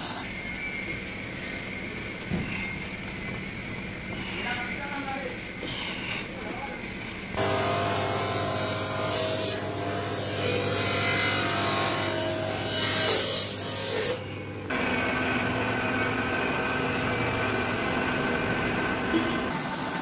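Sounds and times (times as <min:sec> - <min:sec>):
grinding wheel hissing: 0:00.0 - 0:20.0
grinding machine motor hum: 0:06.8 - 0:13.2, 0:14.4 - 0:20.0.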